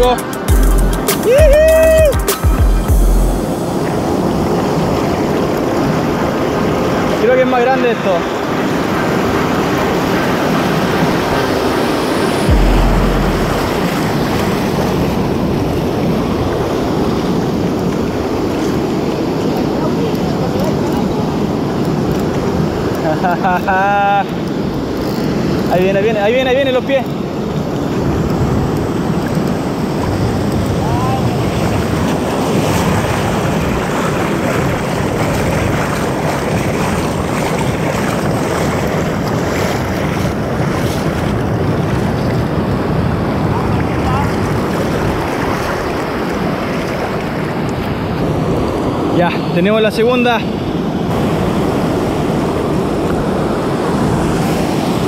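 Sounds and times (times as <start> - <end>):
surf breaking on beach: 3.4 - 24.5, 25.3 - 55.0
wind on microphone: 8.8 - 23.0.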